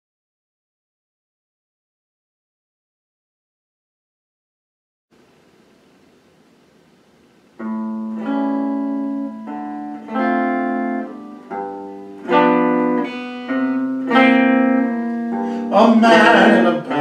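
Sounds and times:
faint hiss: 0:05.1 - 0:17.0
guitar chords ringing: 0:05.2 - 0:17.0.

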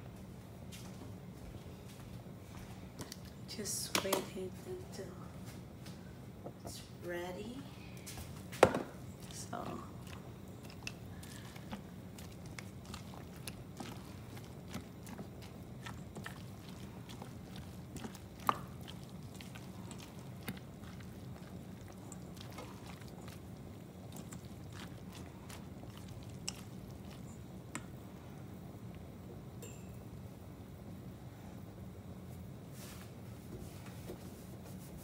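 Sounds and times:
faint steady hum: 0:00.0 - 0:35.0
oil ticking and crackling: 0:07.9 - 0:29.6.

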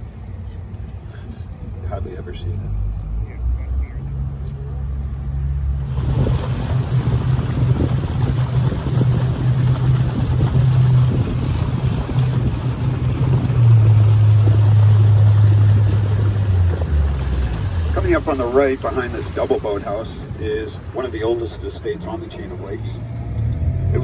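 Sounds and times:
boat motor humming: 0:00.0 - 0:24.0
water rushing past: 0:04.2 - 0:24.0
wind buffeting microphone: 0:05.8 - 0:21.0.

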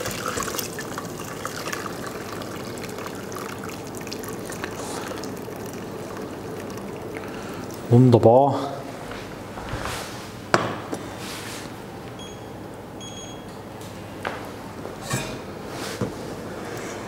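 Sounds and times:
short beeps: 0:12.2 - 0:13.5.

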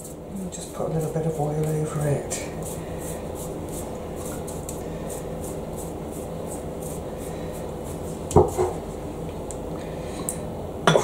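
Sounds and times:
pastry brush stroking: 0:00.0 - 0:08.7
steady low hum: 0:00.0 - 0:11.0.

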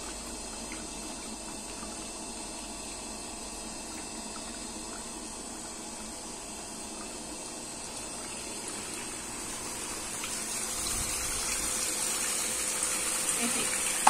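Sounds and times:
water pouring into pool: 0:07.0 - 0:14.0.

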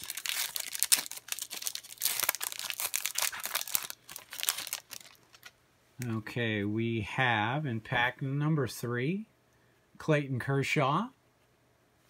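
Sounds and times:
foil wrapper tearing and crinkling: 0:00.0 - 0:05.5.

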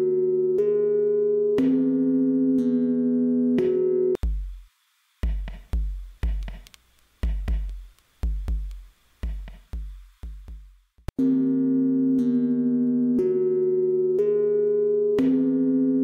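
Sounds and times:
deep kick drums: 0:04.2 - 0:04.6, 0:05.2 - 0:06.6, 0:07.2 - 0:10.8
faint hi-hat ticks: 0:05.2 - 0:10.6
held synth chord: 0:11.2 - 0:16.0.

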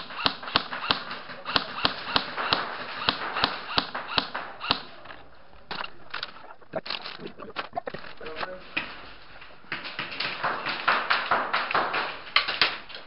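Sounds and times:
airsoft gunshots: 0:00.0 - 0:05.0.

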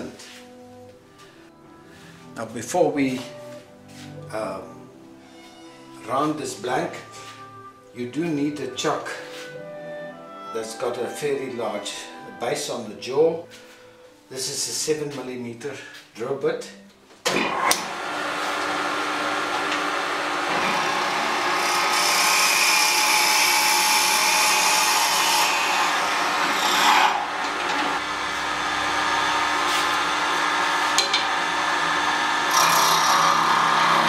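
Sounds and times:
drill bit boring wood: 0:17.5 - 0:34.0
hand tool cutting spinning wood: 0:17.5 - 0:34.0
wood lathe running: 0:17.5 - 0:34.0.

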